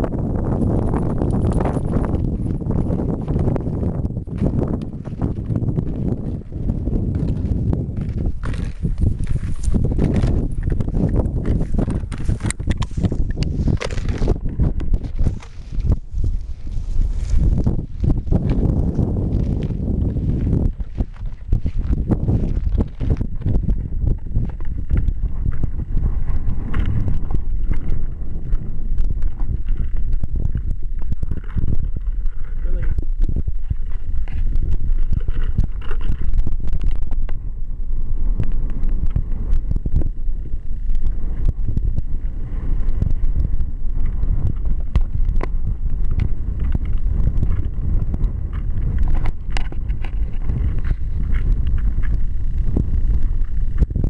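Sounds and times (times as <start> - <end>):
wind buffeting microphone: 0.0 - 54.0
rustles through tall grass: 15.0 - 23.2
short crackles and clicks: 22.4 - 37.5.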